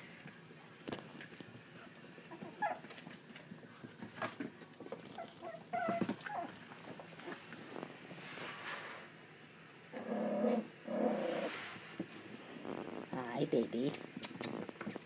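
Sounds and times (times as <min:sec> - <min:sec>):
puppies whining: 0:02.3 - 0:03.0, 0:05.0 - 0:07.4.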